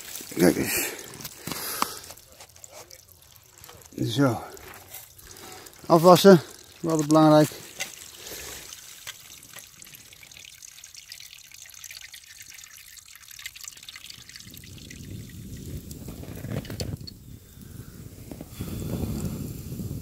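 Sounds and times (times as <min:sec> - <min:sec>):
small water splashes: 0:00.0 - 0:16.3
water dripping and trickling: 0:00.0 - 0:17.3.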